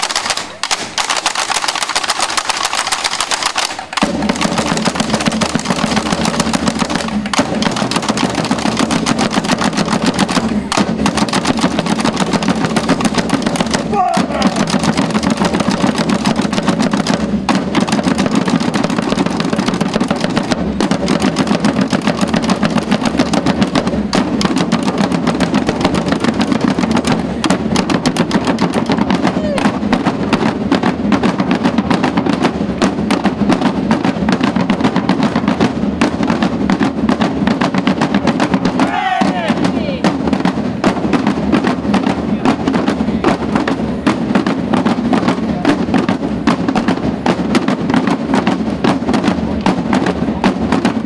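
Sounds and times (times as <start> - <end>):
snare and bass drum band: 0.0 - 51.0.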